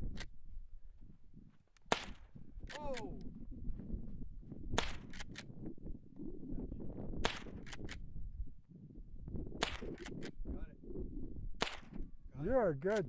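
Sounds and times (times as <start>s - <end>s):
fainter sharp cracks: 1.8s - 3.3s, 4.7s - 5.5s, 7.2s - 8.0s, 9.6s - 10.4s, 11.6s - 12.0s
rifle shots: 4.8s - 5.4s, 7.2s - 7.8s, 9.6s - 10.2s, 11.6s - 12.0s.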